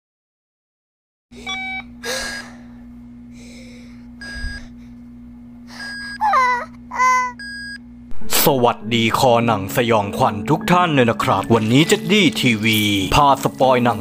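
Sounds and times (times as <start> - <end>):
low hum: 1.4 - 13.2
slow electronic beeps: 4.2 - 4.7, 7.4 - 8.9.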